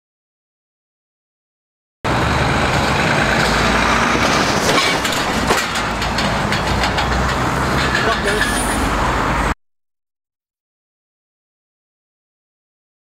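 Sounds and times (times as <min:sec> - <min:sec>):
heavy truck engine rumbling: 0:02.1 - 0:09.6
knocks and rattles: 0:03.4 - 0:08.8.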